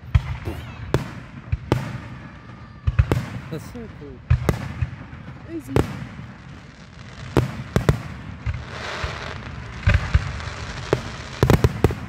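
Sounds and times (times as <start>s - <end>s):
firework hissing: 4.6s - 12.0s.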